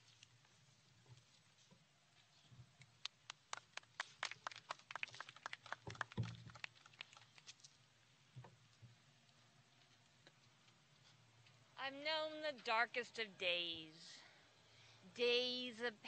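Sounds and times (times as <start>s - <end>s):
people clapping: 3.0s - 7.6s.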